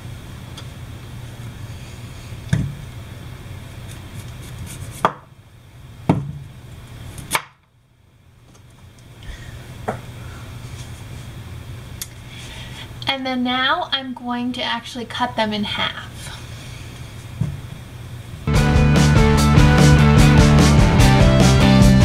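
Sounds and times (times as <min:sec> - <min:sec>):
knife chopping on wooden board: 0:05.0 - 0:05.3.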